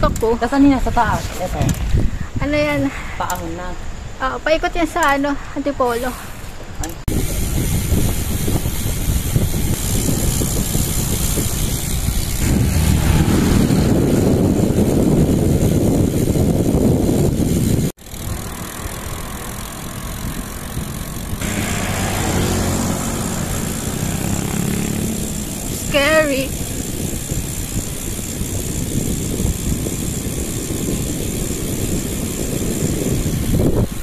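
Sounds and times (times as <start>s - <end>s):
wind and road rumble from bicycle: 0.0s - 34.0s
vehicle engine running: 7.6s - 33.8s.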